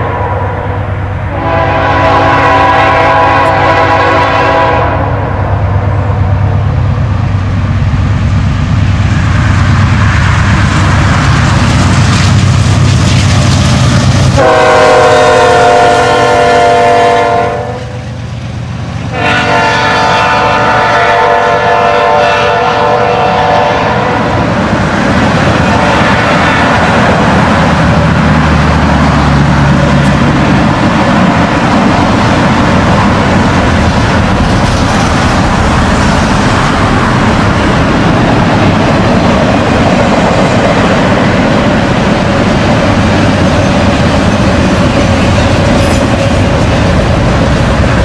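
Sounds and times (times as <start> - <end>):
locomotive air horn blast: 0.0 - 5.4, 14.4 - 18.1, 19.1 - 24.4, 25.7 - 26.3
diesel locomotives rumbling past: 0.0 - 48.0.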